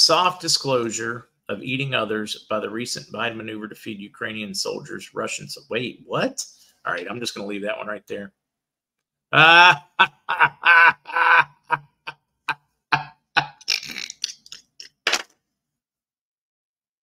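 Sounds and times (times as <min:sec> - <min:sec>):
man laughing hard: 0:09.4 - 0:14.3.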